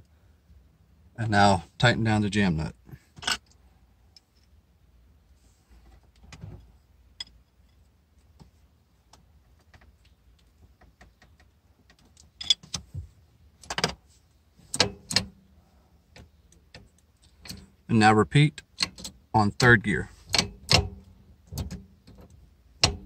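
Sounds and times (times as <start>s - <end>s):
wrench clinking on metal nut: 12.4s - 12.7s.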